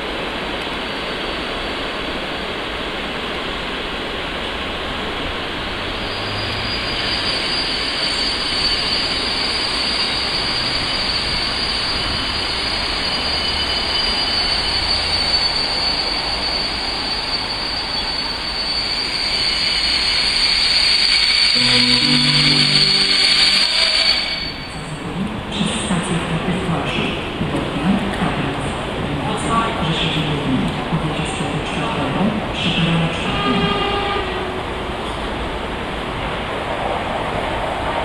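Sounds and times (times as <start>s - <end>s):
train coaches rolling past: 0.0s - 38.0s
train wheels squealing: 5.6s - 25.1s.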